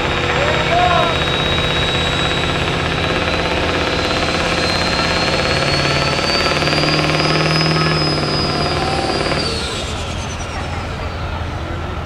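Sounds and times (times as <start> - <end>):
diesel truck engine under load: 0.0 - 12.0
high whine: 0.0 - 12.0.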